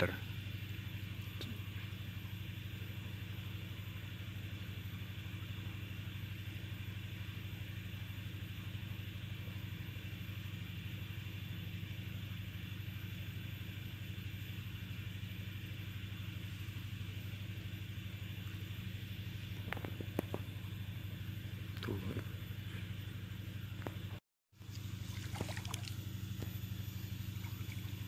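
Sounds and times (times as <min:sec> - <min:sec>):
machine humming: 0:00.0 - 0:28.0.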